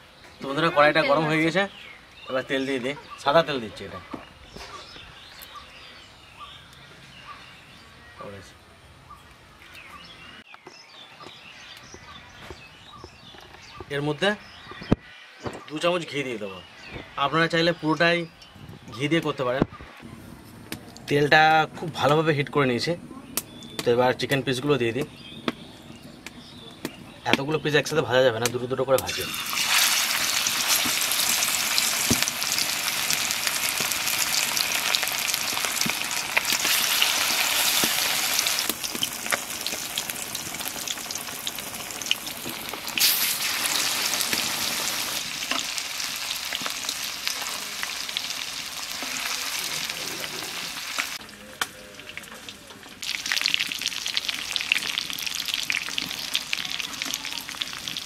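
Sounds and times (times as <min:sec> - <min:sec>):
chicken deep-frying in oil: 0:29.0 - 0:58.0.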